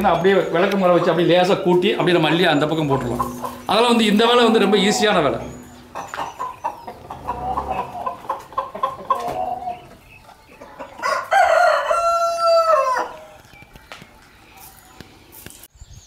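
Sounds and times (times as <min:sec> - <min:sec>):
chickens clucking: 0:00.0 - 0:14.8
rooster crowing: 0:11.0 - 0:13.4.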